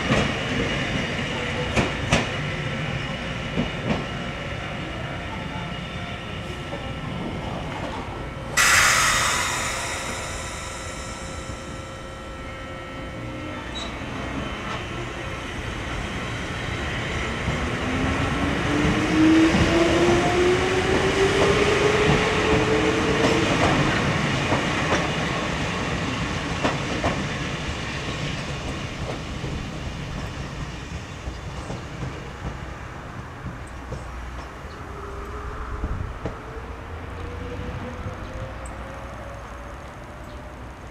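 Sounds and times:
electric train motor whine: 8.3 - 14.9
train wheels clicking over rail joints: 8.6 - 12.2.

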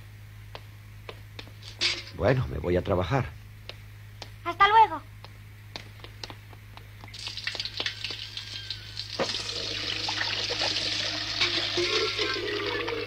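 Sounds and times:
light footsteps: 0.5 - 1.8, 5.2 - 8.4
water running into a pail: 7.1 - 13.0.

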